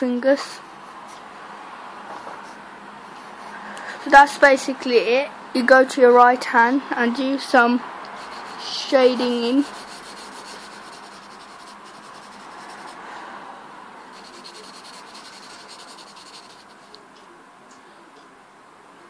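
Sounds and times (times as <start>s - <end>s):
pencil scratching on paper: 8.1s - 13.0s, 14.1s - 16.9s.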